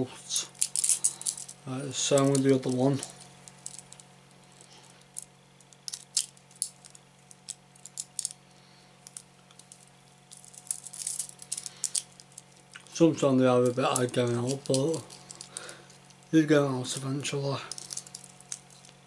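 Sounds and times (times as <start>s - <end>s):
faint steady hum: 0.0s - 19.0s
handcuffs clicking and rattling: 0.6s - 4.0s, 9.1s - 12.5s, 13.6s - 16.2s, 17.7s - 19.0s.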